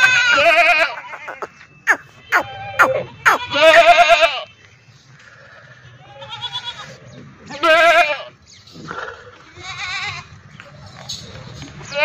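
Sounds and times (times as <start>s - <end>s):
goats bleating: 0.0s - 4.5s, 6.0s - 8.4s, 9.4s - 10.3s.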